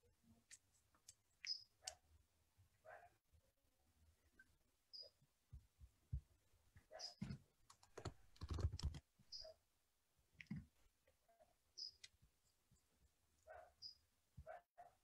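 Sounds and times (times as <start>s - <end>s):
computer keyboard and mouse clicking: 7.6s - 9.0s.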